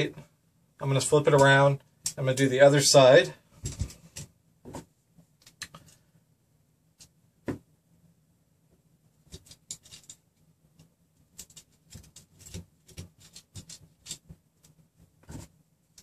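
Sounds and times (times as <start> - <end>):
metal and plastic parts clicking: 9.3 - 10.2.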